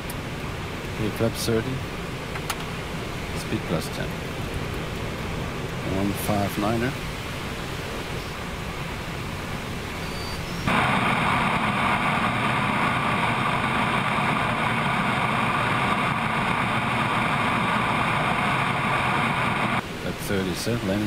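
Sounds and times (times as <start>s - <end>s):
jet engine noise: 0.0s - 21.0s
rush of airflow: 10.6s - 19.8s.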